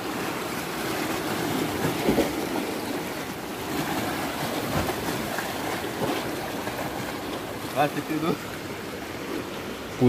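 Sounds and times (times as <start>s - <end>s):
sea surf washing over rocks: 0.0s - 10.0s.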